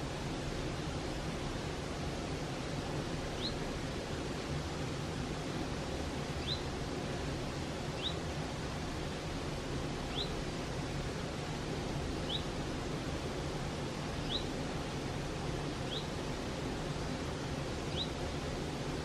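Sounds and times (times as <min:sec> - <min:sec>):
stream flowing: 0:00.0 - 0:19.0
bird high rising call: 0:14.2 - 0:14.5.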